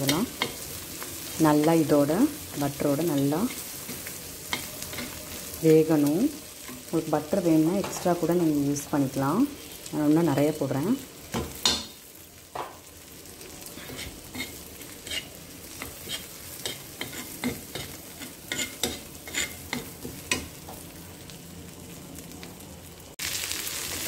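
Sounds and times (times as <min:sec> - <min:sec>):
onions sizzling in butter: 0:00.0 - 0:24.0
steel spatula scraping and tapping: 0:03.1 - 0:05.4, 0:13.8 - 0:20.5.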